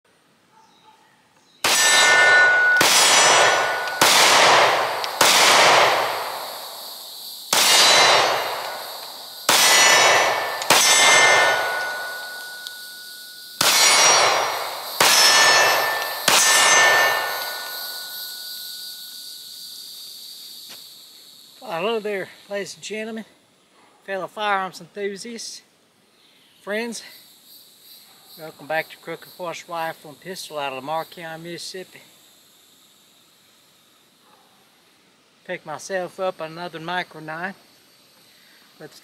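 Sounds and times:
sharp metallic clangs: 0:01.6 - 0:20.8.

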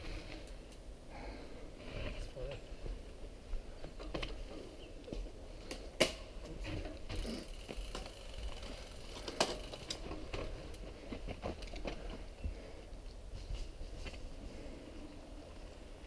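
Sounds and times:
mountain bike rattling: 0:03.8 - 0:12.8.

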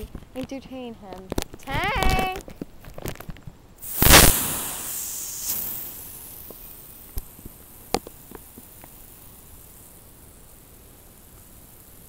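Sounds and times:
garden hose spraying water: 0:03.8 - 0:12.0.

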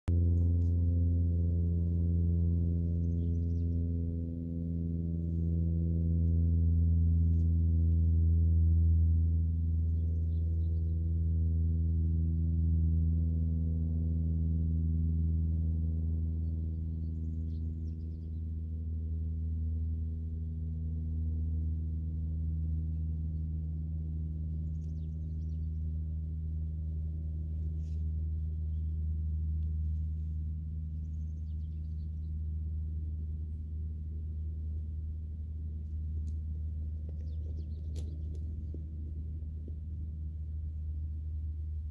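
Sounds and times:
ambient drone music: 0:00.1 - 0:41.9
faint bird chirps: 0:30.9 - 0:32.4.

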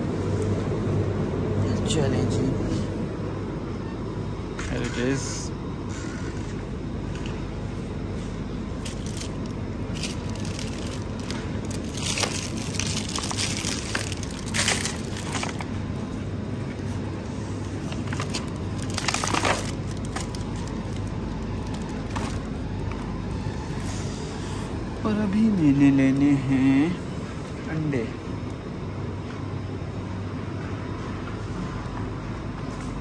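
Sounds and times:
steady low hum: 0:00.0 - 0:33.0
shopping basket rustling and crinkling: 0:08.8 - 0:15.8, 0:16.8 - 0:22.6.

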